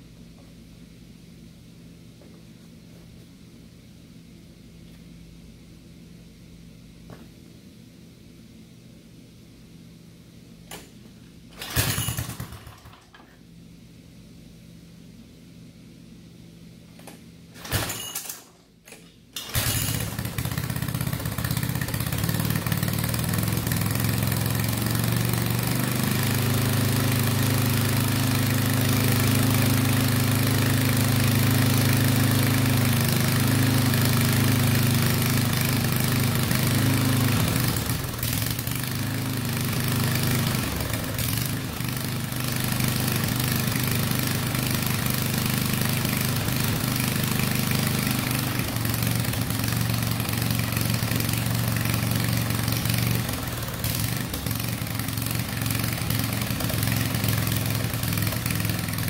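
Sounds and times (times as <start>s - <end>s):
recoil starter pulls: 11.5s - 13.1s, 17.0s - 31.2s
small engine running: 11.6s - 13.0s, 19.4s - 59.0s.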